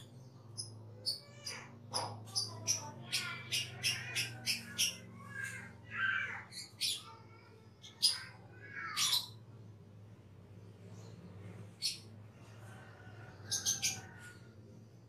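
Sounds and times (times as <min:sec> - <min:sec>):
starling calling: 0:00.0 - 0:07.2, 0:07.8 - 0:09.4, 0:13.4 - 0:14.5.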